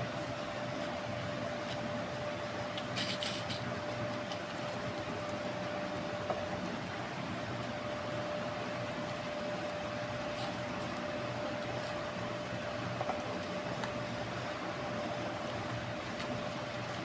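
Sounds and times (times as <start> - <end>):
machine hum with thin whine: 0.0 - 17.0
plastic scraping: 2.7 - 4.7.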